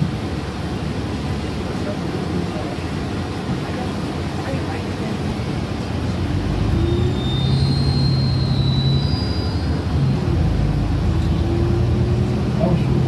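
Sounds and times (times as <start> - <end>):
bus engine idling: 0.0 - 13.0
faint high whine: 6.3 - 10.0.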